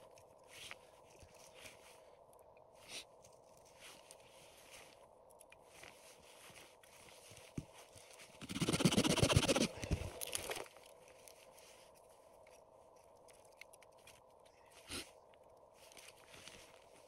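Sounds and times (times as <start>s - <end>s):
firewood being handled: 0.1s - 15.0s, 15.6s - 17.0s.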